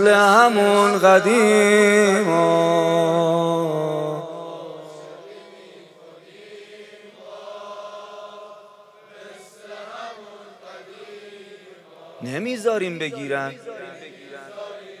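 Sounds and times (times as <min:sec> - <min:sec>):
crowd chanting: 0:04.5 - 0:15.0.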